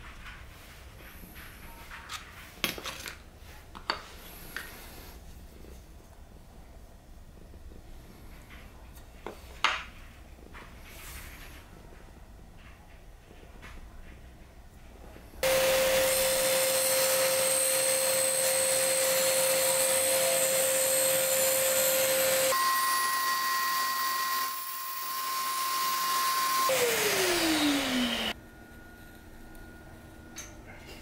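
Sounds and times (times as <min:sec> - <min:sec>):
table saw motor whine: 0:15.4 - 0:28.4
vacuum dust extractor hiss: 0:15.4 - 0:28.4.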